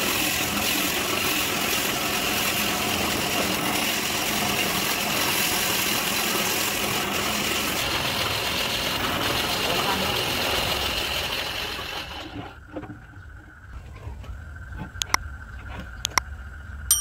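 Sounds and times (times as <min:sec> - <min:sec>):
bandsaw cutting wood: 0:00.0 - 0:12.5.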